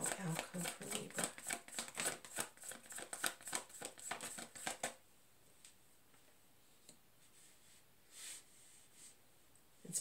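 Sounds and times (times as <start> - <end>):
cards being shuffled by hand: 0.0 - 5.0.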